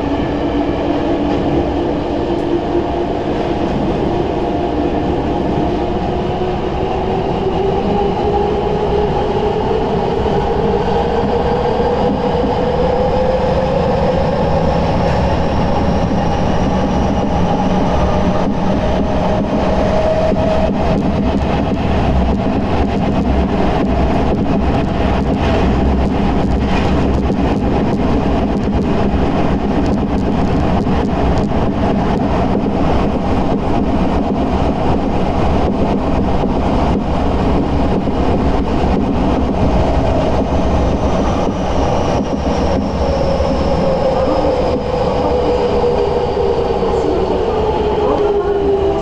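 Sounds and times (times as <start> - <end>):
subway train wheel noise: 0.0 - 49.0.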